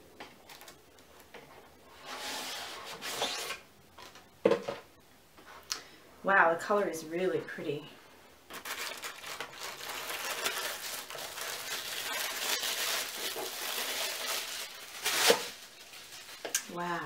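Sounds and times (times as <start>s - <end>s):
tissue paper crinkling: 8.5s - 16.6s.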